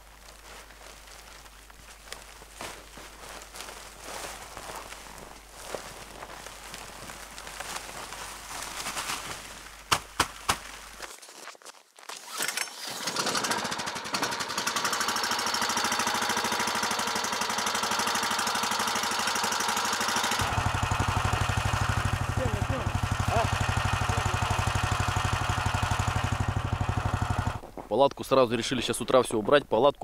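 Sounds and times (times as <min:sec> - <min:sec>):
small engine idling: 0:12.7 - 0:27.6.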